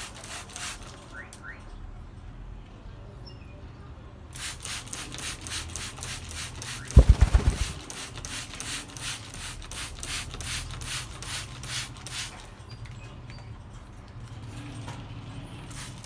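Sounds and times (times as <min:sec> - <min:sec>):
spray bottle squirting water: 0:00.0 - 0:01.1, 0:04.3 - 0:12.5, 0:15.6 - 0:16.0
parrot flapping wings: 0:04.4 - 0:09.8.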